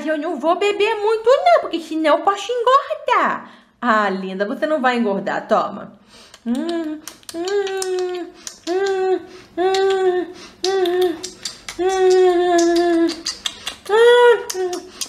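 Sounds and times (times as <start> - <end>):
mouth clicks: 6.2 - 15.0
childlike voice humming mmm: 6.4 - 15.0.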